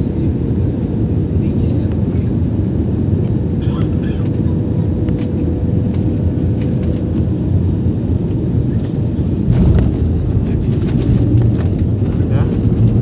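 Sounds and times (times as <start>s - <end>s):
airliner cabin rumble: 0.0s - 13.0s.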